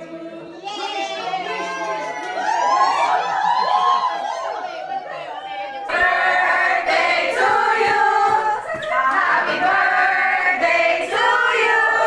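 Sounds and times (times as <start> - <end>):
crowd singing in unison: 0.0 - 1.0, 5.9 - 12.0.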